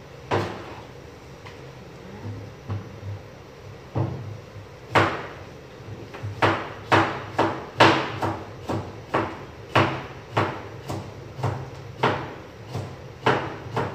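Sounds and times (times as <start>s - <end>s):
knife chopping on cutting board: 4.9s - 5.3s, 6.1s - 13.9s.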